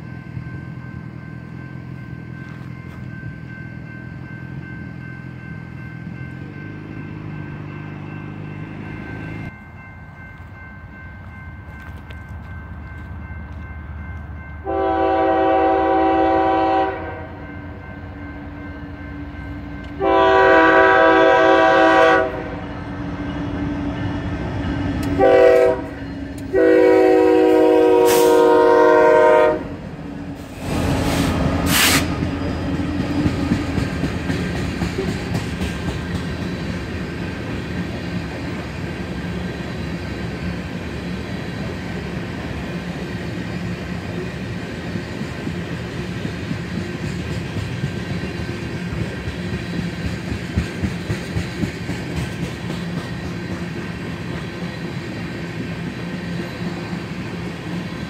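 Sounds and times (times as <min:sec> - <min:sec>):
train rumbling: 0:00.0 - 0:58.0
locomotive horn blasts: 0:14.6 - 0:17.5, 0:19.9 - 0:22.7, 0:25.2 - 0:29.9.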